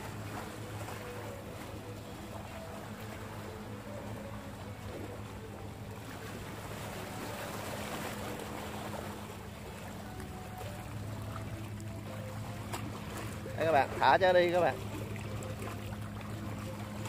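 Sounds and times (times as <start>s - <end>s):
seawater sloshing: 0.0s - 17.0s.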